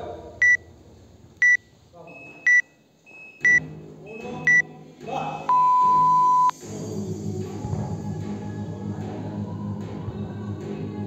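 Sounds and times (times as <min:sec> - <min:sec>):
countdown timer short high beeps: 0:01.4 - 0:04.6, 0:05.5 - 0:06.5
long lower beep: 0:01.4 - 0:04.6, 0:05.5 - 0:06.5.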